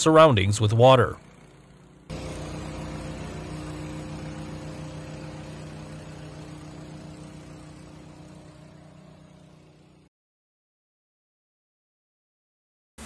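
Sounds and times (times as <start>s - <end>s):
low machine hum: 0.1s - 10.1s.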